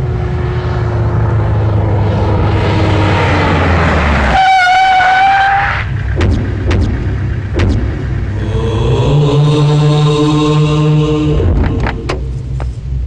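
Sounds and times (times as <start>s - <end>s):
horn-like blast: 4.3s - 5.9s
low rumble with falling tone: 5.8s - 13.0s.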